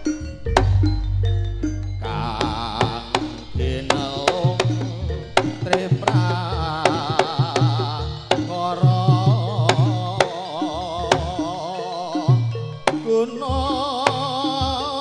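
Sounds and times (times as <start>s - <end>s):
deep drum strokes: 0.0s - 10.4s
wavering melody with vibrato: 0.0s - 15.0s
sharp drum taps: 2.5s - 8.5s.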